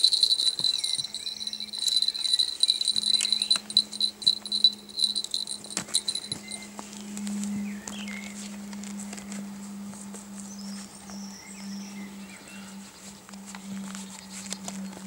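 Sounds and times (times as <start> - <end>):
handling clicks: 0.0 - 6.6
small bell jingling: 0.0 - 6.7.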